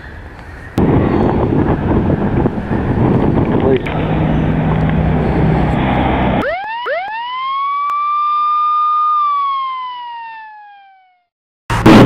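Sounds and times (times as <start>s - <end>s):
street noise: 0.0s - 7.0s
wind on microphone: 0.6s - 6.4s
siren wailing: 3.9s - 11.3s.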